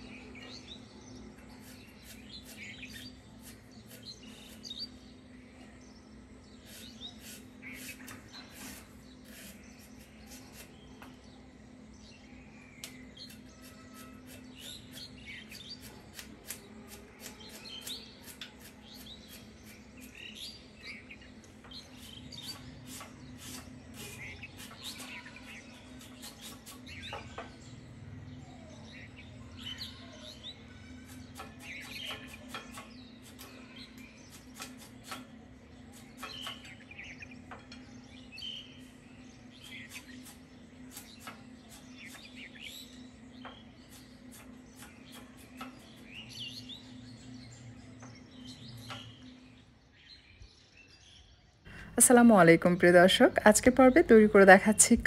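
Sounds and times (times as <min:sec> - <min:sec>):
small birds chirping: 0:00.0 - 0:55.0
mango peeled against blade: 0:01.6 - 0:04.9, 0:06.6 - 0:11.1, 0:12.8 - 0:27.5, 0:30.8 - 0:37.3, 0:39.6 - 0:42.8.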